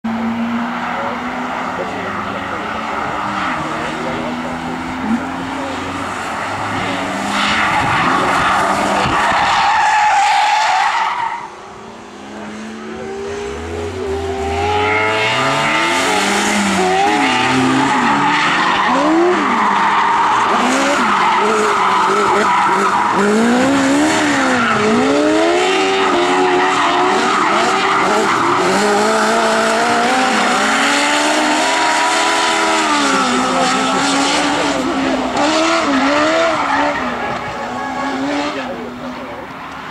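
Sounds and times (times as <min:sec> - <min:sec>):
car engines revving: 0:00.0 - 0:39.9
tyres squealing and skidding: 0:00.3 - 0:39.9.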